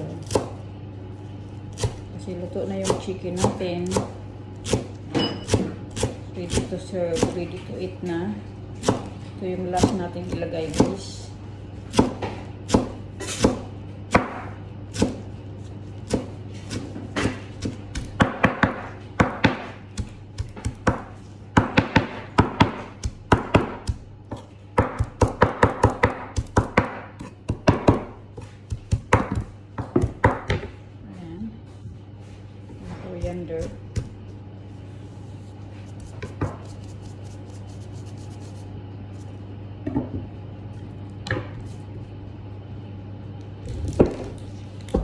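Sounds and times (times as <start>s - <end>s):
knife chopping on cutting board: 2.8s - 7.4s, 8.8s - 11.0s, 11.9s - 15.3s, 16.0s - 30.7s, 36.0s - 38.2s.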